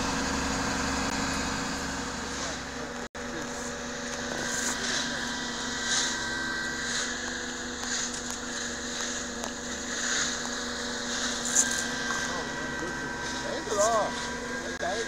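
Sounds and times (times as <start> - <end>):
engine humming steadily: 0.0 - 15.0
footsteps crunching in snow: 3.4 - 14.7.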